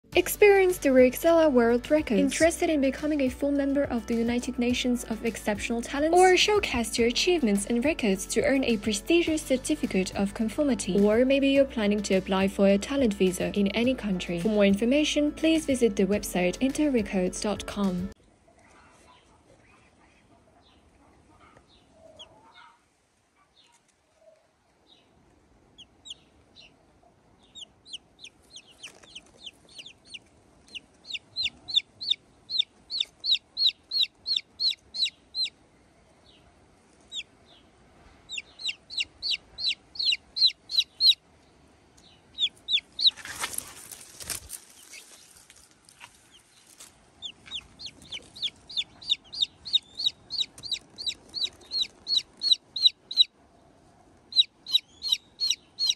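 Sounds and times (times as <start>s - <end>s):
chick peeping: 25.8s - 26.8s, 27.4s - 35.6s, 37.0s - 37.3s, 38.3s - 41.2s, 42.0s - 45.2s, 46.0s - 53.3s, 54.3s - 55.9s.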